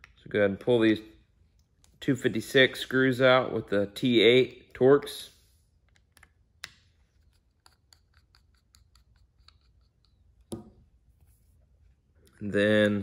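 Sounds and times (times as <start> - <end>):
screwdriver ticking and scraping: 7.2 - 10.5.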